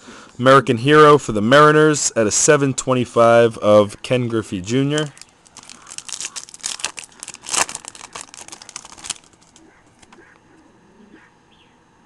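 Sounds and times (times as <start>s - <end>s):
foil wrapper tearing and crinkling: 5.0s - 10.1s.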